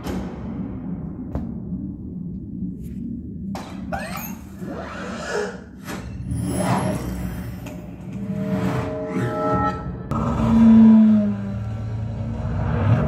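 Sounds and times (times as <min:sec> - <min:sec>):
low rumbling intro music: 0:00.0 - 0:03.9, 0:07.2 - 0:13.0.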